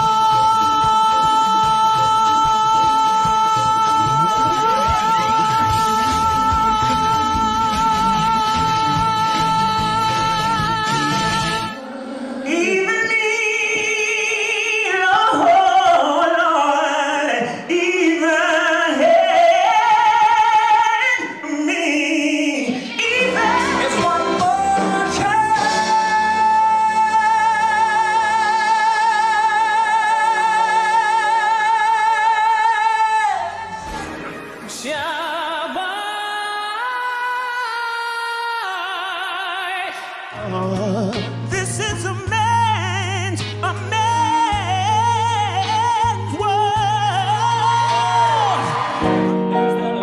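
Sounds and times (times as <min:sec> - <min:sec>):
band playing: 0:00.0 - 0:11.9, 0:23.0 - 0:32.0, 0:40.4 - 0:50.0
man singing with vibrato: 0:00.0 - 0:34.0, 0:34.6 - 0:49.0.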